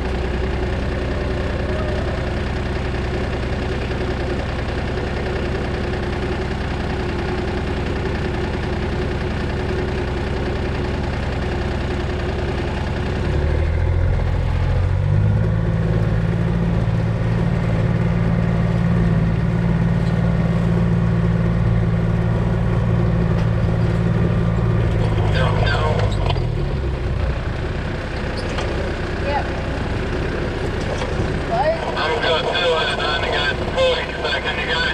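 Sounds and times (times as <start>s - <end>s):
vehicle engine idling and revving: 0.0s - 34.9s.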